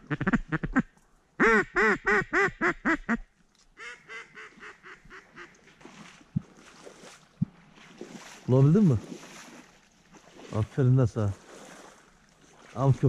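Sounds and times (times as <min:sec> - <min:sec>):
duck call quacks: 0:00.0 - 0:03.2, 0:03.8 - 0:05.5.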